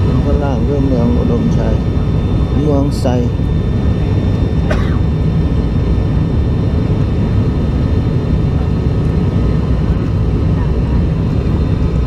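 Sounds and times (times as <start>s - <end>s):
propeller engine drone in cabin: 0.0s - 12.0s.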